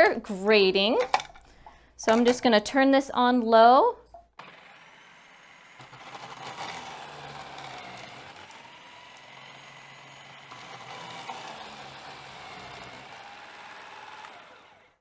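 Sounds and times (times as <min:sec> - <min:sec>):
food processor motor whine: 0:04.4 - 0:15.0.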